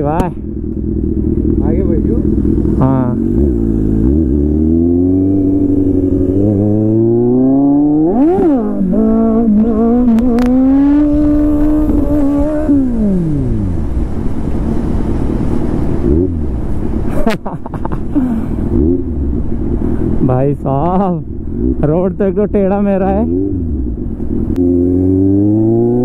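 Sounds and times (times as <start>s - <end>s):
motorcycle engine accelerating: 0.0s - 26.0s
wind rushing over microphone: 2.1s - 17.0s.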